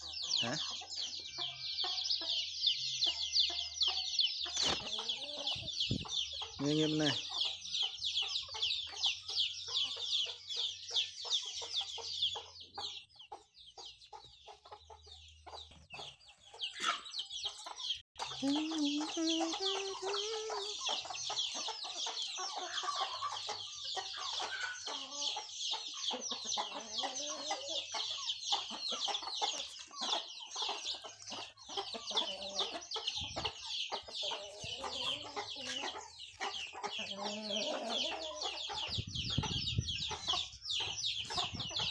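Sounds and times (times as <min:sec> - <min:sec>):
chickens clucking: 0:00.0 - 0:41.9
rapid high peeping calls: 0:00.0 - 0:41.9.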